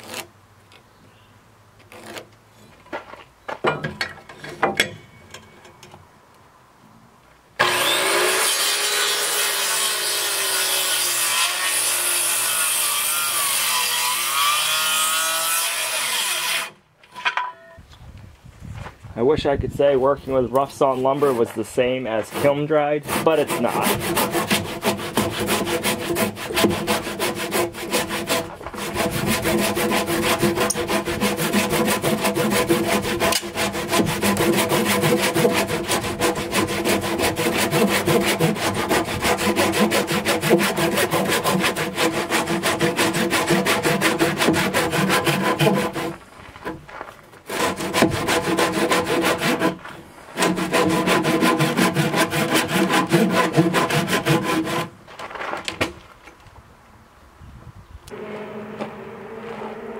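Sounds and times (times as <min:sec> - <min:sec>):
handsaw cutting wood: 0:07.6 - 0:16.8, 0:21.1 - 0:46.2, 0:47.5 - 0:54.9.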